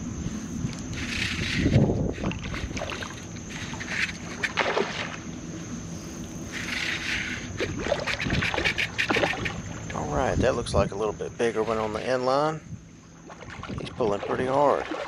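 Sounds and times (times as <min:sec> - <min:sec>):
fish splashing in water: 0:00.9 - 0:05.2, 0:06.5 - 0:09.9, 0:13.2 - 0:15.0.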